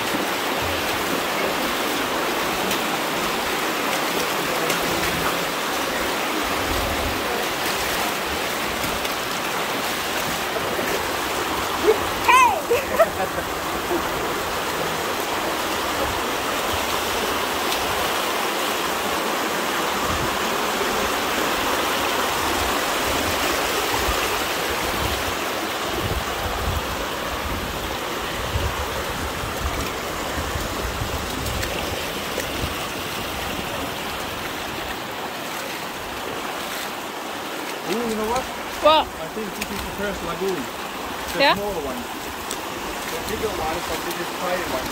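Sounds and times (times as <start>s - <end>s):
river rushing over rocks: 0.0s - 44.9s.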